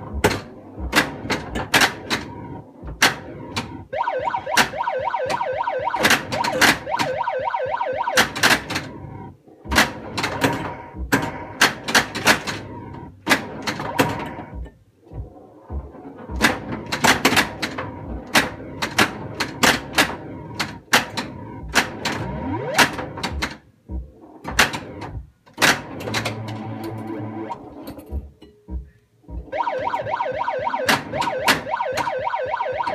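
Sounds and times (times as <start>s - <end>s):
pinball flippers clacking: 0.0s - 2.3s, 2.9s - 7.2s, 8.1s - 8.9s, 9.6s - 32.9s
warbling electronic sound effects: 29.5s - 32.9s.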